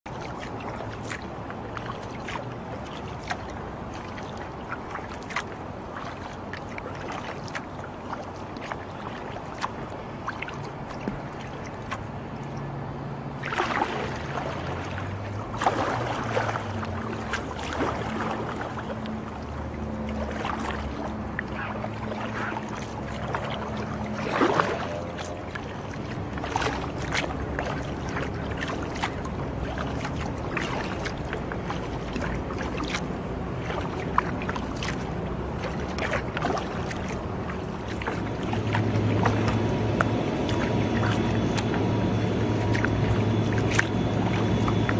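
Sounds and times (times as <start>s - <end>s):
paddle strokes splashing water: 0.0s - 44.9s
water drips: 0.1s - 44.9s.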